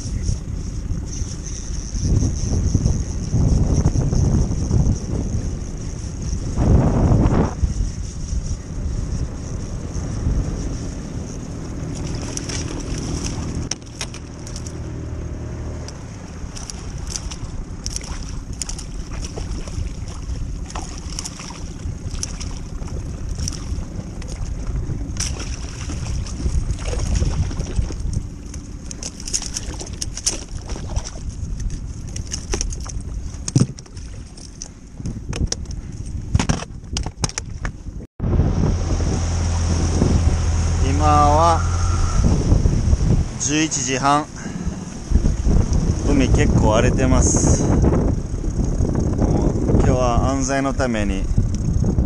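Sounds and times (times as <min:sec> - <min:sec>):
low hum: 0:00.0 - 0:35.2, 0:37.8 - 0:52.0
wind on microphone: 0:00.0 - 0:52.0
water slapping against boat hull: 0:11.9 - 0:14.8, 0:16.5 - 0:35.6
fishing tackle clicking: 0:12.1 - 0:14.8, 0:15.9 - 0:18.9, 0:28.1 - 0:30.5.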